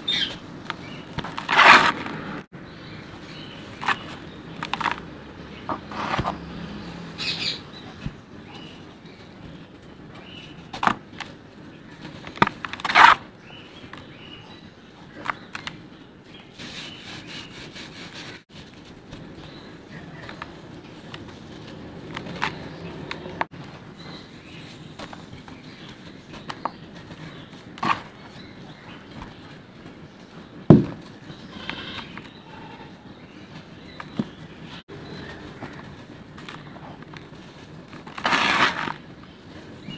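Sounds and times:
sharp crunch: 0.8 - 2.4, 38.0 - 39.1
heavy thump: 30.7 - 31.0.

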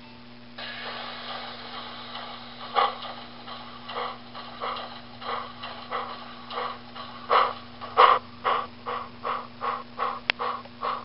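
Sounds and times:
steady low hum: 0.3 - 11.0
steam locomotive exhaust chuffs: 0.6 - 11.0.

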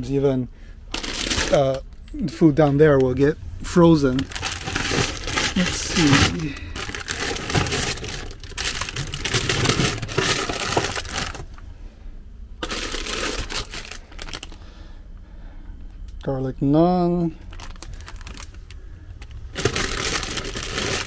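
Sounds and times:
plastic packaging crinkling: 0.9 - 2.0, 4.0 - 11.6, 12.6 - 14.6, 17.4 - 21.0.

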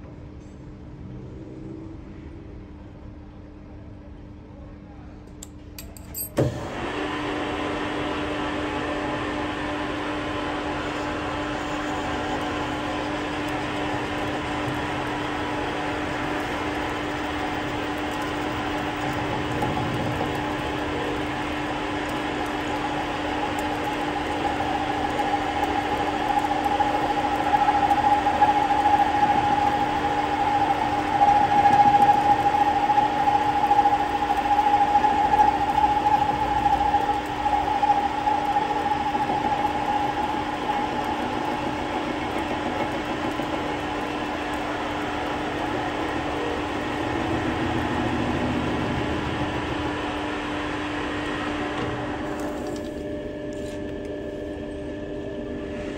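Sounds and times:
metal lathe running: 9.2 - 52.8
high whine of cutting tool: 10.1 - 53.0.

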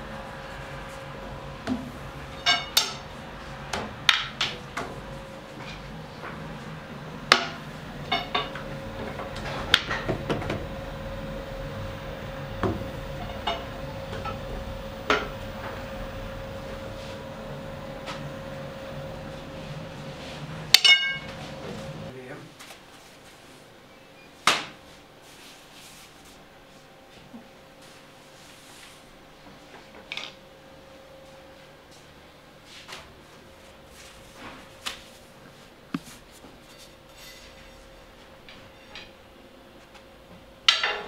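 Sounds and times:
steady hum: 0.0 - 41.0.

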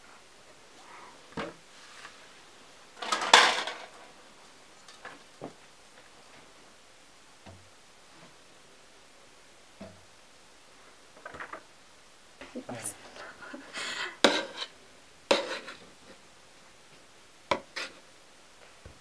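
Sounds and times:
plastic basin clattering: 3.0 - 4.0.

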